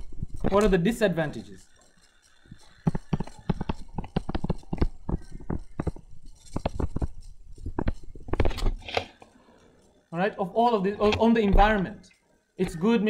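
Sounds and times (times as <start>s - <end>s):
stylus tapping on tablet: 2.8s - 8.5s.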